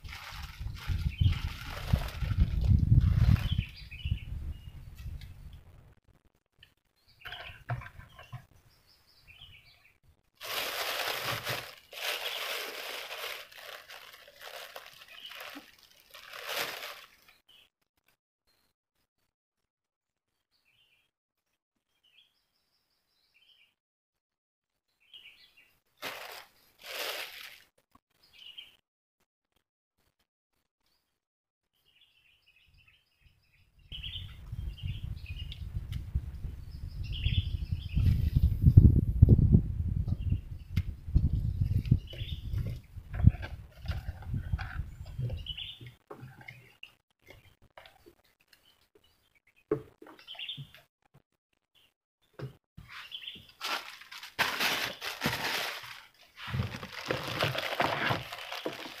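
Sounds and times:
rustling and crinkling: 0.0 - 3.8, 10.4 - 17.4, 26.0 - 27.8, 41.7 - 48.2, 52.8 - 59.0
birds chirping: 31.8 - 38.6, 40.1 - 50.8, 51.8 - 53.6.

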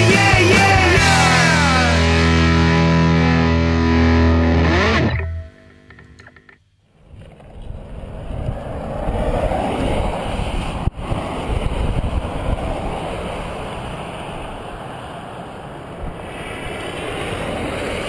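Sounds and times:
wind rushing over microphone: 7.7 - 15.2.

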